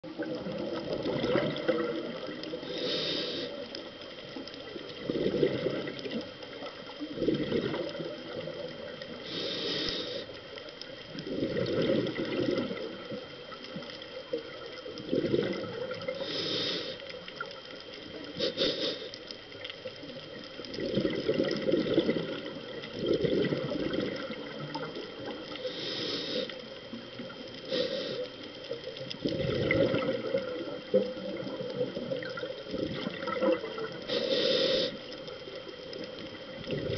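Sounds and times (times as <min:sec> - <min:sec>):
exhale bubbling rumbles: 0:00.0 - 0:02.9, 0:04.9 - 0:06.2, 0:07.1 - 0:09.5, 0:11.2 - 0:13.2, 0:14.4 - 0:16.5, 0:20.6 - 0:25.8, 0:29.2 - 0:34.9, 0:35.6 - 0:36.9
regulator inhale hisses: 0:01.3 - 0:04.0, 0:09.1 - 0:10.6, 0:16.0 - 0:17.2, 0:18.1 - 0:19.5, 0:25.4 - 0:28.8, 0:33.8 - 0:35.3.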